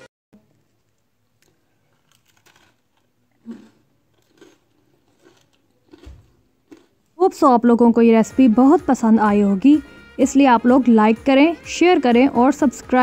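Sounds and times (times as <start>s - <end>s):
bread crust crackling: 1.3s - 6.9s.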